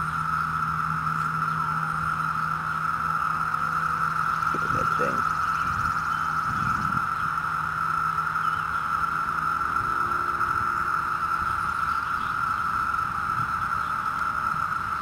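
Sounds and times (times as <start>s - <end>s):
cicadas chorus drone: 0.0s - 15.0s.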